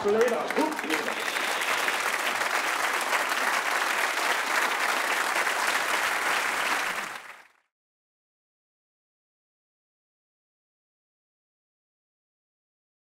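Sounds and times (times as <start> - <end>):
audience applauding: 0.0 - 7.6.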